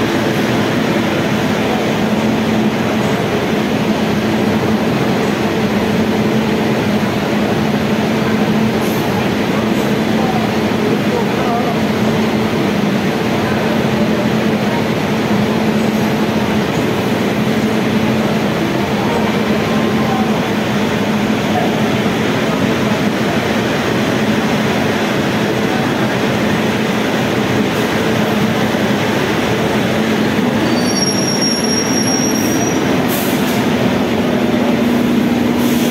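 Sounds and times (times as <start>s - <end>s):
train wheels rumbling on rails: 0.0s - 35.9s
high-pitched wheel squeal: 30.6s - 32.9s.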